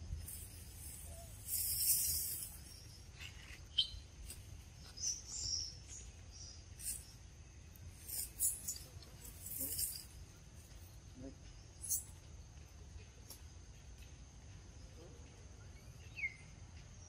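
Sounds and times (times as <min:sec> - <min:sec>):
high insect drone: 0:00.0 - 0:16.6
bird chirps: 0:00.9 - 0:10.1, 0:11.4 - 0:12.2, 0:15.6 - 0:17.0.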